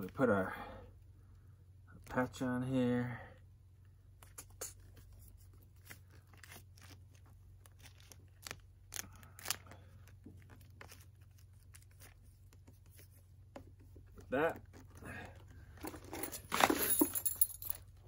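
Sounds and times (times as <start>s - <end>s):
membrane crinkling and rustling: 4.1s - 18.0s.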